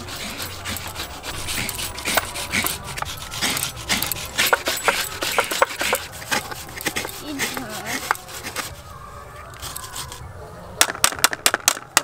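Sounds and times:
coconut scraped on blade: 0:00.0 - 0:08.9, 0:09.5 - 0:10.2
onion rubbed on metal grater: 0:00.0 - 0:08.9.

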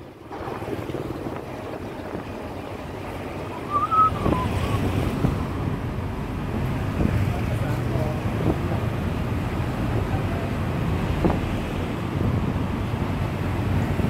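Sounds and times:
wind buffeting microphone: 0:00.0 - 0:14.0
wavering high squeal: 0:03.4 - 0:05.8.

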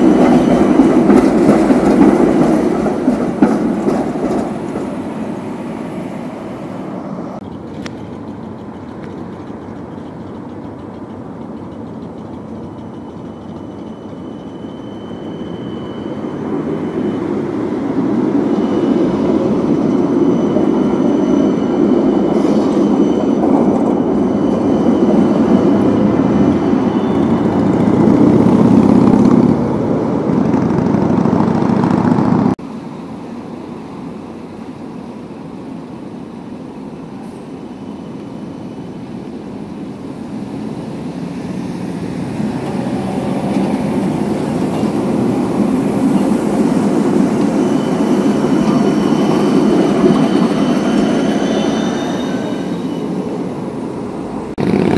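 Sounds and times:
steady street noise: 0:00.0 - 0:54.9
tram wheels rumbling on rails: 0:00.0 - 0:54.9.

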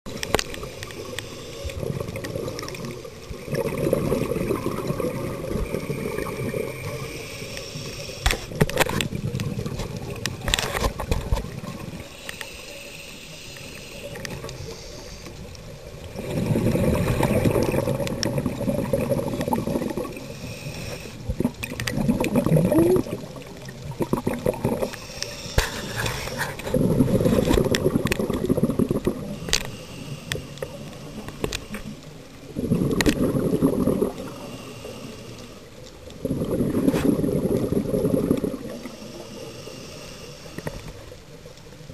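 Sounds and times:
regulator inhalation hiss: 0:00.6 - 0:02.0, 0:05.8 - 0:08.6, 0:12.0 - 0:15.8, 0:20.1 - 0:21.4, 0:24.8 - 0:26.6, 0:29.2 - 0:31.9, 0:34.3 - 0:35.8, 0:38.6 - 0:41.2
bubbling exhalations: 0:01.8 - 0:07.0, 0:16.1 - 0:20.3, 0:21.3 - 0:25.0, 0:25.6 - 0:29.6, 0:32.5 - 0:34.6, 0:36.2 - 0:39.0.

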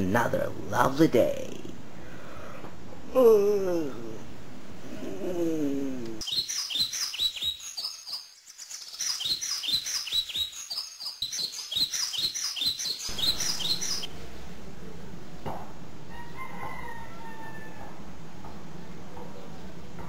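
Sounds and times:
small birds chirping: 0:05.9 - 0:14.5.

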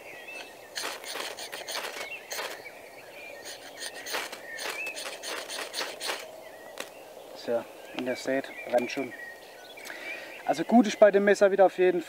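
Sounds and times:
knife scraping ferrocerium rod: 0:03.5 - 0:06.2.

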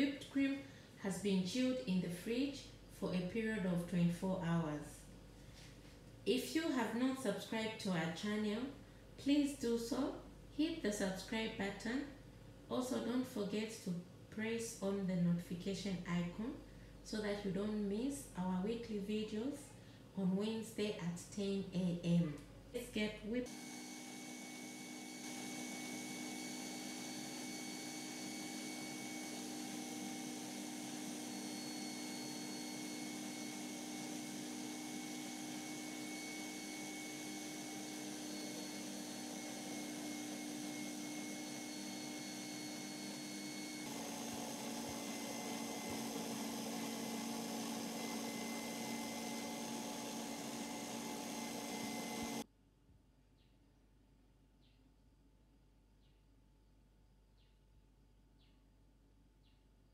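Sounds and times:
stand mixer motor whine: 0:23.5 - 0:52.4.

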